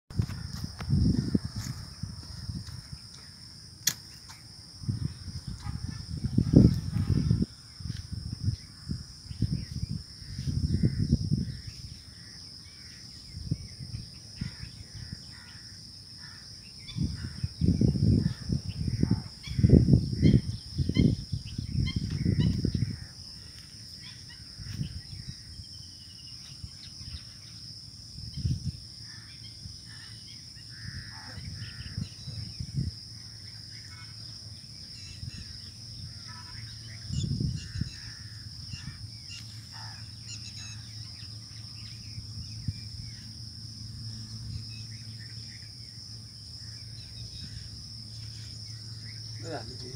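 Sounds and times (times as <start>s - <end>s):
wind gusts on microphone: 0.1s - 3.5s, 4.5s - 12.3s, 13.1s - 15.4s, 16.8s - 25.8s, 28.0s - 30.0s, 30.8s - 44.8s
insect drone: 0.1s - 49.9s
faint bird calls: 29.1s - 32.5s.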